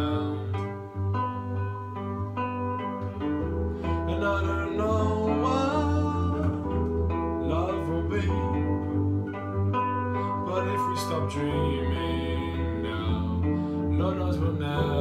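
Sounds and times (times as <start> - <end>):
man singing: 0.0 - 0.9, 3.9 - 9.4, 10.3 - 15.0
acoustic guitar: 0.0 - 15.0
electric keyboard: 0.0 - 15.0.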